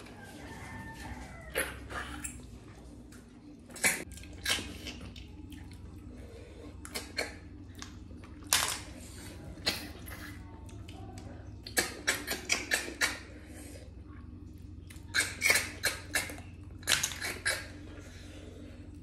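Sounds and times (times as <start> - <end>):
slurps and clicks: 9.6 - 17.8.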